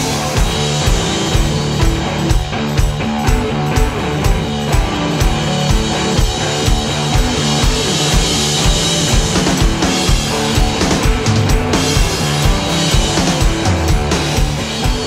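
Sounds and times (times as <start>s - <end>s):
drum kit beat: 0.0s - 15.0s
rock music: 0.0s - 15.0s.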